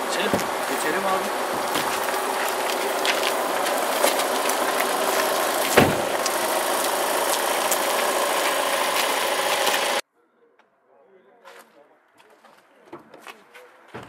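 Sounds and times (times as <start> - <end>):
car engine and road noise: 0.0 - 10.0
loud thump: 5.7 - 6.2.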